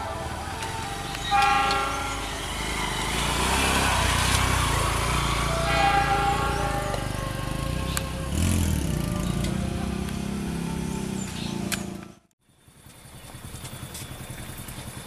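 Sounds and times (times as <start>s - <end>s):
train coaches rolling on rails: 0.0s - 10.3s.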